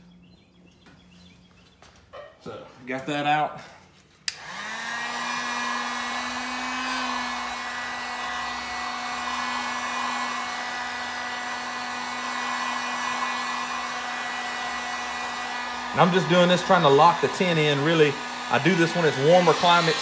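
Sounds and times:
heat gun blowing air: 4.2s - 20.0s.

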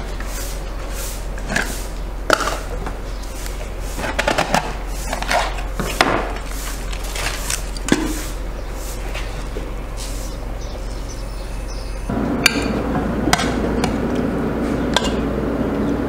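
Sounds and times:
foil seal crinkling: 6.4s - 8.1s.

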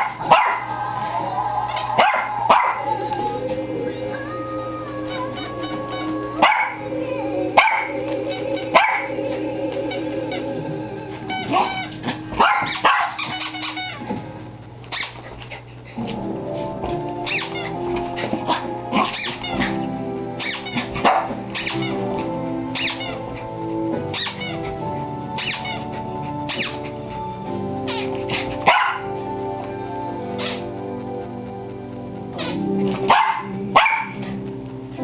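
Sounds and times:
background music: 0.0s - 14.8s, 16.0s - 35.0s
small dog barking shrilly: 12.4s - 13.2s, 28.7s - 29.1s, 32.4s - 34.2s.

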